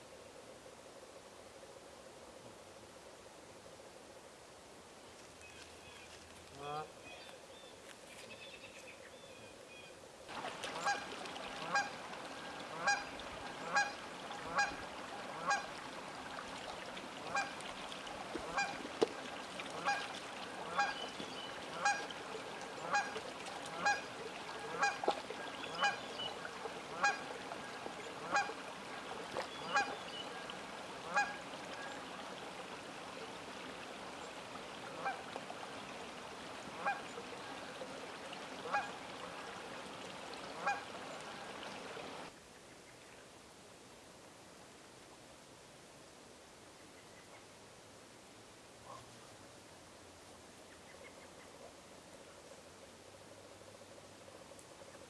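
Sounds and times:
steady background hiss: 0:00.0 - 0:55.0
geese honking: 0:10.7 - 0:15.8, 0:17.3 - 0:17.6, 0:18.4 - 0:18.8, 0:19.7 - 0:26.0, 0:26.8 - 0:28.6, 0:29.6 - 0:31.4, 0:40.6 - 0:41.5.

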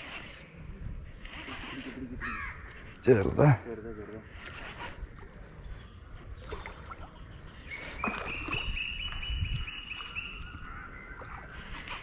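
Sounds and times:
fishing reel whirring: 0:00.0 - 0:03.3, 0:04.2 - 0:06.5, 0:11.4 - 0:12.0.

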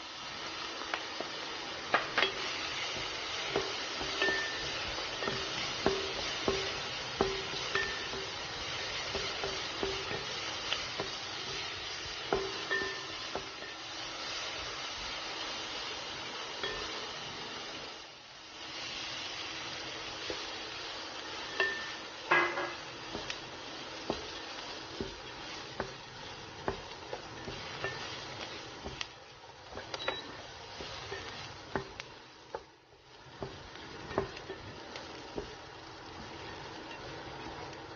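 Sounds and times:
vegetables sizzling in oil: 0:00.0 - 0:37.9
wooden spatula scraping pan: 0:21.3 - 0:37.7.

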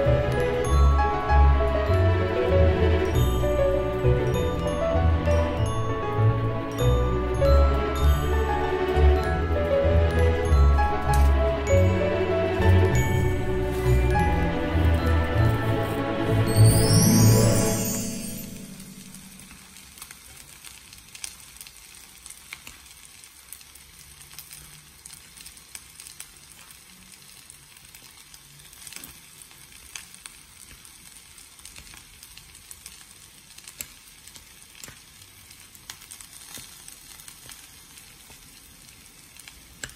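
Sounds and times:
food sizzling in hot stone pot: 0:00.0 - 0:39.9
small crackles and pops: 0:19.2 - 0:39.9.

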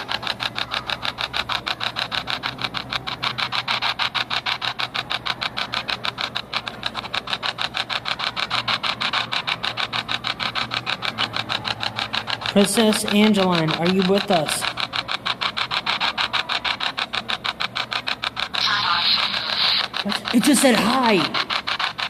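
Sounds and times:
pulsing radio static: 0:18.5 - 0:21.7.

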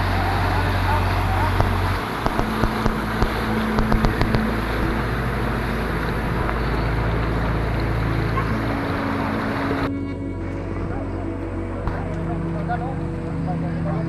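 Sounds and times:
wind buffeting microphone: 0:00.0 - 0:09.9
floodwater rushing: 0:00.0 - 0:14.0.

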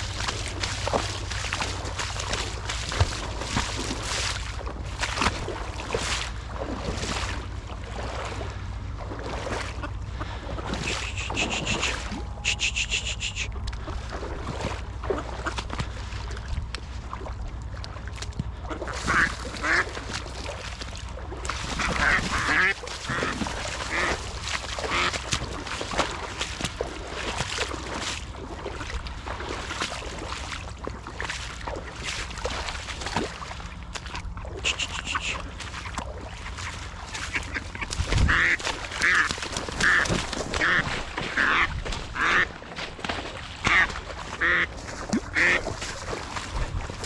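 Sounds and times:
wings flapping on water: 0:00.0 - 0:47.0
duck quacking: 0:09.7 - 0:13.6, 0:18.7 - 0:19.9, 0:21.7 - 0:25.2, 0:34.6 - 0:35.6, 0:36.6 - 0:42.6, 0:43.6 - 0:45.8.

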